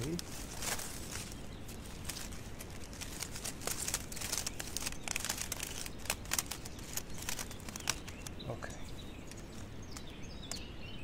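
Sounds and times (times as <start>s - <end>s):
plastic mesh netting crackling: 0.0s - 10.6s.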